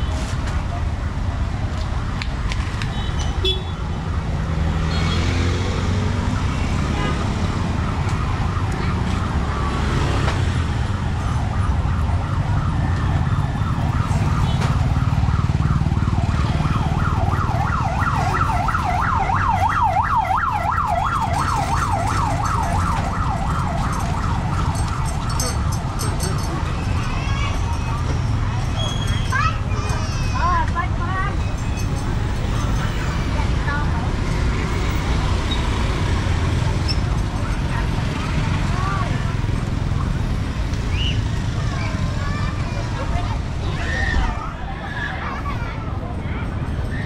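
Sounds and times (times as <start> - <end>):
street traffic rumble: 0.0 - 47.0
siren yelping: 7.6 - 29.7.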